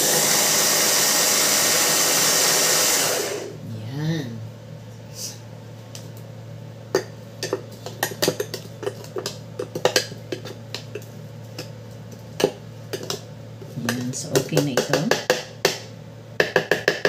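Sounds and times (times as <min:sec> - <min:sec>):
steady low hum: 0:03.4 - 0:17.0.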